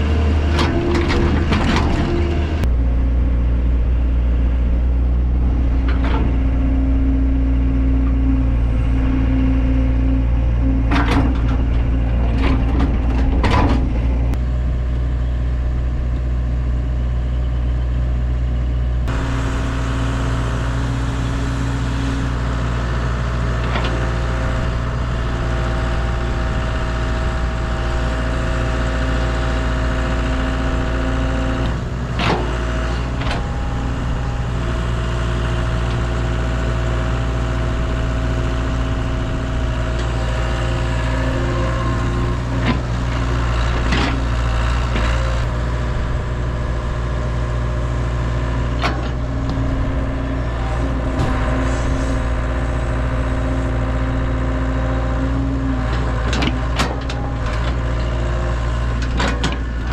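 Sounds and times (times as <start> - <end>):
heavy digging equipment engine: 0.0 - 59.9
whine shifting in pitch: 2.4 - 12.3.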